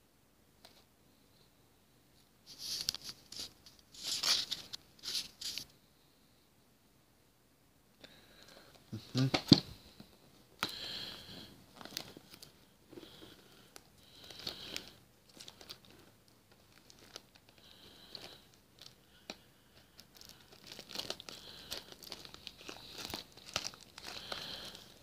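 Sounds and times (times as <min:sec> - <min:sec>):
plastic wrapping crinkling and tearing: 0:02.5 - 0:05.6, 0:11.7 - 0:12.6, 0:14.1 - 0:19.4, 0:20.0 - 0:25.0.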